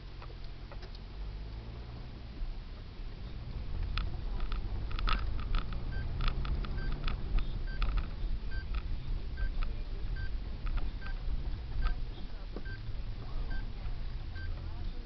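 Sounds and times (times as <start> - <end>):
car engine and tyres rumbling: 0.0 - 15.0
clicks and rattles: 3.7 - 9.8, 10.6 - 11.2.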